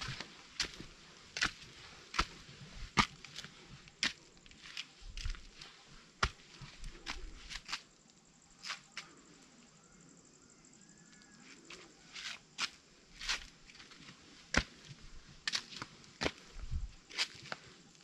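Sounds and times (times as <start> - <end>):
footsteps crunching on rocky trail: 0.0 - 7.8, 12.2 - 18.0.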